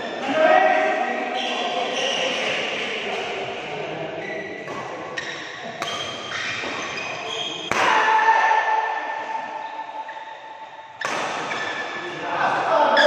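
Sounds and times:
rackets hitting shuttlecock: 2.2s - 13.0s
shoes squeaking on court: 4.2s - 7.7s, 9.6s - 11.9s.

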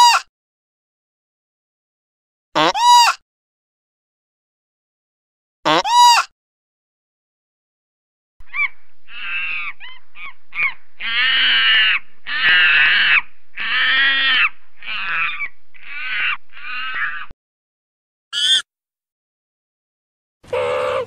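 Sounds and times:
loud animal calls: 8.4s - 17.3s, 18.4s - 18.6s, 20.5s - 21.0s.

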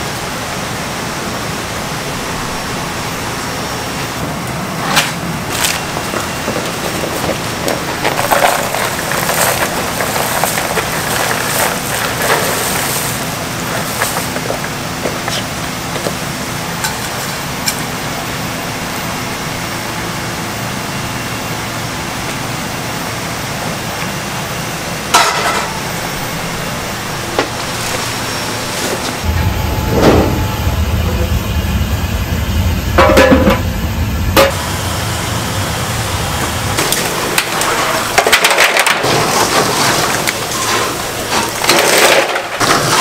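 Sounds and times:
broth boiling and bubbling: 0.0s - 18.4s
dried fish poured from a box: 8.2s - 14.6s.

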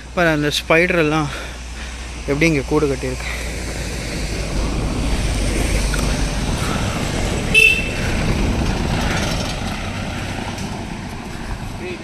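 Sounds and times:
vehicle engine rumbling past: 0.0s - 12.0s
short horn toot: 7.5s - 8.0s.

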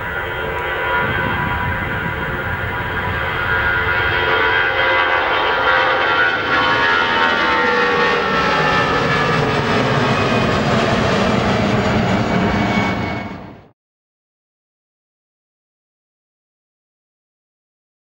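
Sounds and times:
jet engines rumbling and whining: 0.0s - 13.7s.

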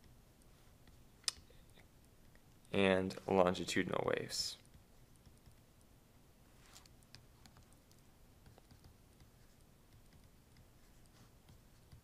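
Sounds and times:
low steady hum: 0.0s - 12.0s
stylus tapping on tablet: 7.0s - 10.8s, 11.4s - 12.0s.

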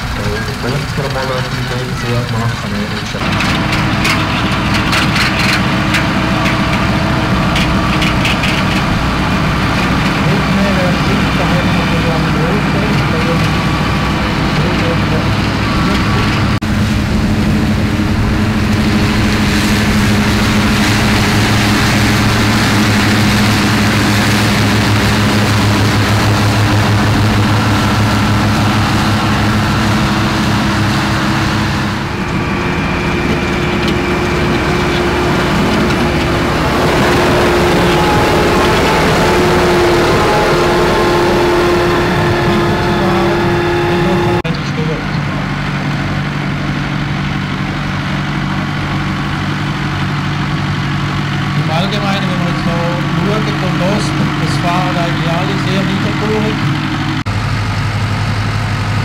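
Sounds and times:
tractors mowing grass: 0.0s - 59.0s.

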